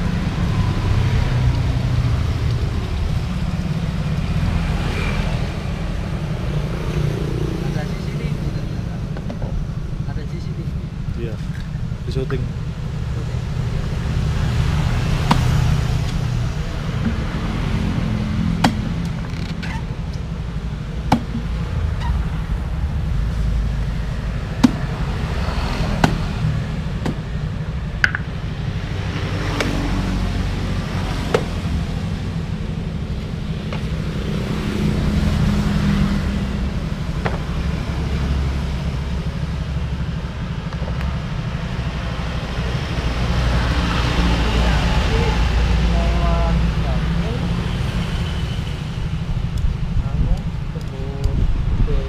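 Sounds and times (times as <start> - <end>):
street traffic rumble: 0.0 - 52.0
blade chopping coconuts: 15.2 - 15.7, 18.5 - 19.1, 21.1 - 21.5, 24.6 - 25.0, 25.8 - 26.4.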